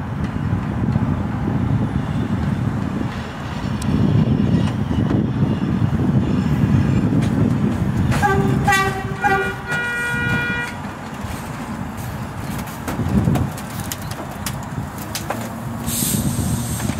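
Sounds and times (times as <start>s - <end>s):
train wheels rumbling on track: 0.0s - 16.9s
train horn toots and blast: 8.1s - 10.8s.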